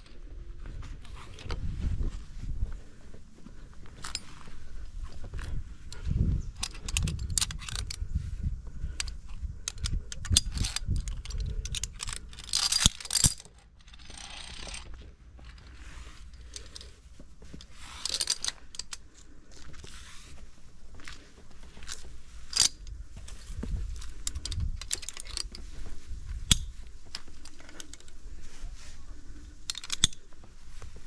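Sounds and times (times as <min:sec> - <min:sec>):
scuffing and handling noise: 0:00.0 - 0:09.6, 0:10.2 - 0:31.0
scraping rustles: 0:00.0 - 0:31.0
carabiners clinking: 0:03.8 - 0:04.7, 0:05.3 - 0:08.1, 0:08.9 - 0:20.0, 0:21.0 - 0:25.8, 0:26.4 - 0:28.3, 0:29.4 - 0:30.4.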